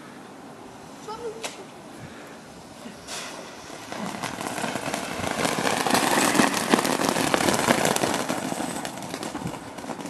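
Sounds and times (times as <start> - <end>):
firework crackling hiss: 0.8 - 10.0.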